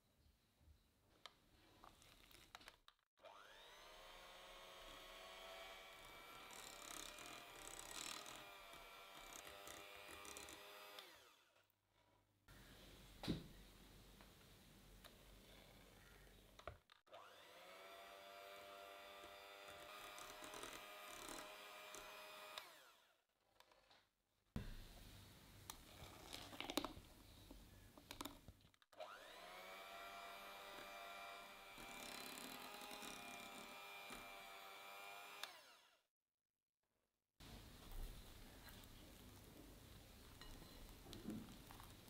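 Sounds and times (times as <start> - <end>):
electric hand mixer whining: 3.2 - 11.6, 17.1 - 23.1, 29.0 - 36.0.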